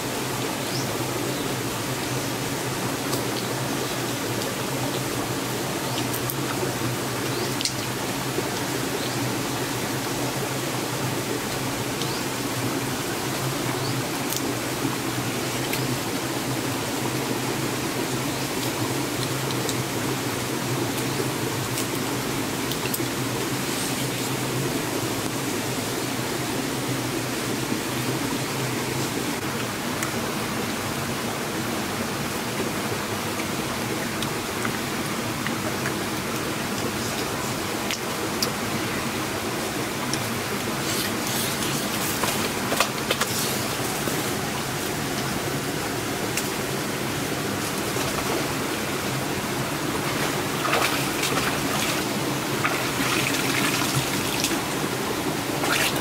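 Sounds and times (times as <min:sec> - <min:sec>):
rocky stream rushing: 0:00.0 - 0:56.0
footsteps splashing in water: 0:50.0 - 0:54.6.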